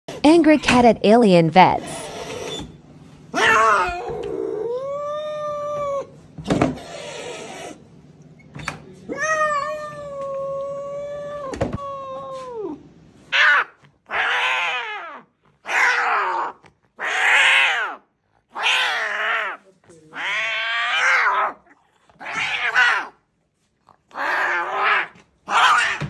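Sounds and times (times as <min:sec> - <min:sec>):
cat yowling: 0:03.3 - 0:06.1, 0:09.1 - 0:23.2, 0:24.1 - 0:26.0.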